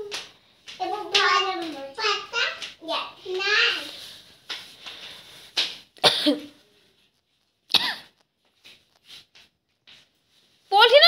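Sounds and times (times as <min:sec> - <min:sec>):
person coughing: 0:06.0 - 0:06.5, 0:07.7 - 0:08.1.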